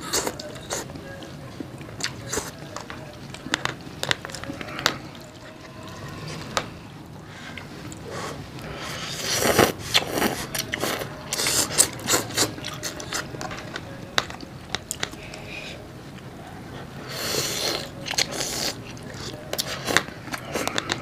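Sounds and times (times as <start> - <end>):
chewing: 0.0 - 21.0
wet noodle slurping: 4.2 - 13.3, 17.0 - 21.0.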